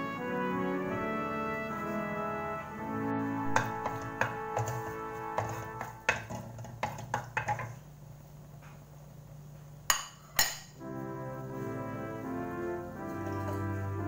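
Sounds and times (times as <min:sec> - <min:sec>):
background music with brass: 0:00.0 - 0:06.3, 0:10.8 - 0:14.0
wooden spatula knocking on wok: 0:03.5 - 0:07.8.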